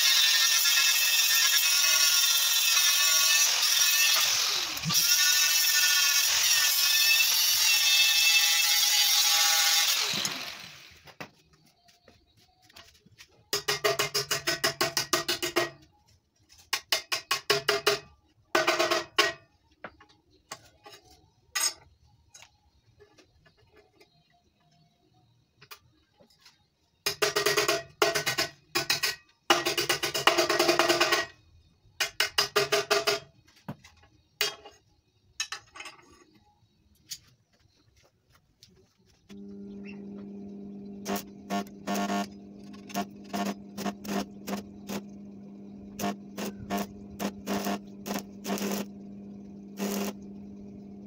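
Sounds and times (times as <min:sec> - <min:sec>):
arc welding crackling buzz: 0:39.3 - 0:51.0.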